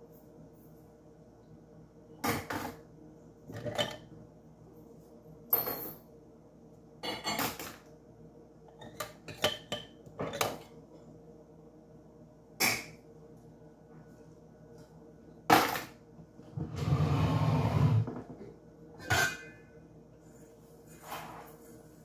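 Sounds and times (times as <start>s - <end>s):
cutlery and dishes clattering: 7.0s - 7.8s, 19.0s - 19.6s.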